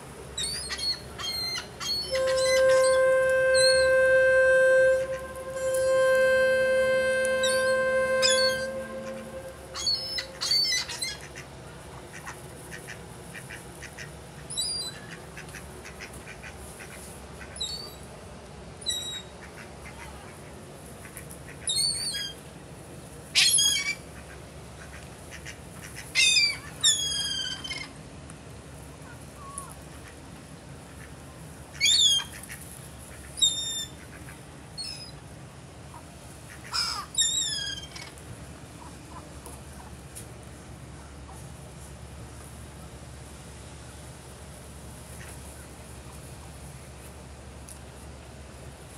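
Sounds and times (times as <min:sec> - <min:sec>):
birds calling: 0:00.4 - 0:11.2.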